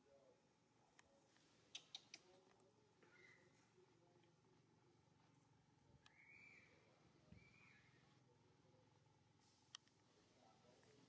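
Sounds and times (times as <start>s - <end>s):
faint background hum: 0.0s - 11.0s.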